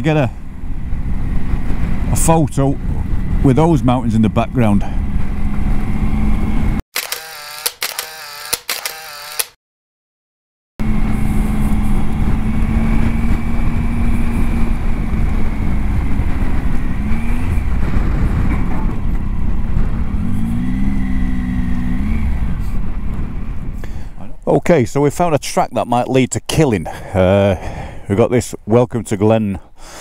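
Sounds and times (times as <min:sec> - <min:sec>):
heavy wind: 0:00.0 - 0:06.8, 0:10.8 - 0:30.0
road rumble: 0:00.0 - 0:06.8, 0:10.8 - 0:30.0
motorcycle engine running: 0:10.8 - 0:23.8.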